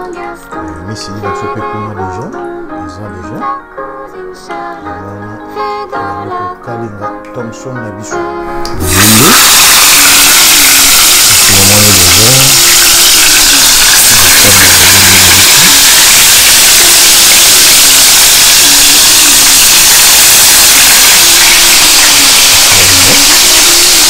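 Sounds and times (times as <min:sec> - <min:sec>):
faint background music: 0:00.0 - 0:08.9
fish sizzling in hot oil: 0:08.8 - 0:24.0.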